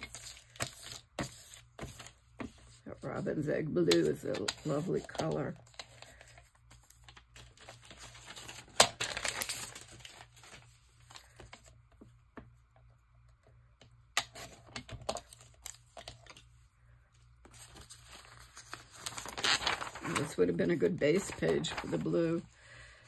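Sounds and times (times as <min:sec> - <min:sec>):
paper rustling and sliding: 0:17.4 - 0:22.4.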